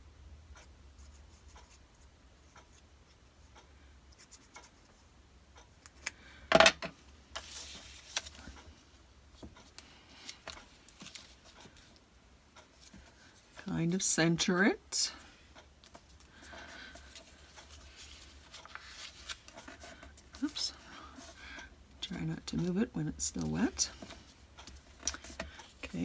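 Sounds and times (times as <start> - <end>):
paper rustling: 7.4 - 8.6, 10.2 - 11.9, 15.8 - 20.6.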